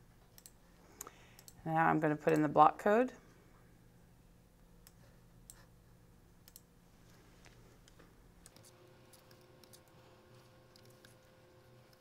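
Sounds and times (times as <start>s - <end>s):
faint steady hum: 0.0s - 12.0s
computer mouse and keyboard clicks: 7.8s - 12.0s.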